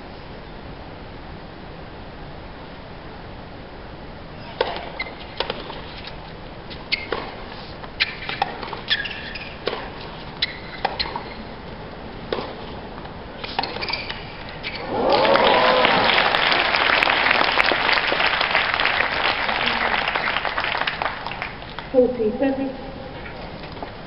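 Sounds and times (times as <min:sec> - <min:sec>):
tennis shoes squeaking: 0:04.5 - 0:15.1
racket striking tennis ball: 0:04.6 - 0:05.9, 0:06.8 - 0:11.4, 0:12.2 - 0:14.7
tennis ball bouncing: 0:04.6 - 0:05.9, 0:06.7 - 0:14.7.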